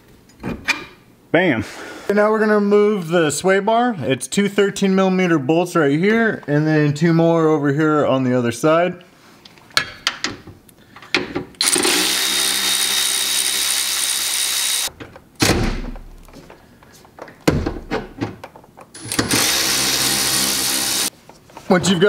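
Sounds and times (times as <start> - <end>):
cordless electric ratchet running: 11.6 - 14.9, 19.0 - 21.1.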